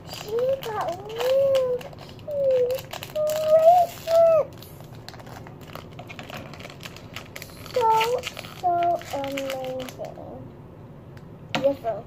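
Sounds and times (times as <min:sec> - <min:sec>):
foil wrappers crinkling: 0:00.0 - 0:10.3
plastic toy pieces clicking: 0:00.1 - 0:04.3
child humming: 0:00.2 - 0:04.6.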